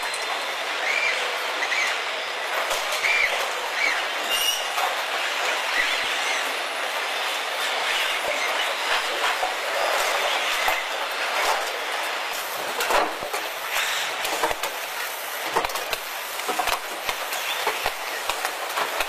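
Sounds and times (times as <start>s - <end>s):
steady mechanical hiss: 0.0s - 19.0s.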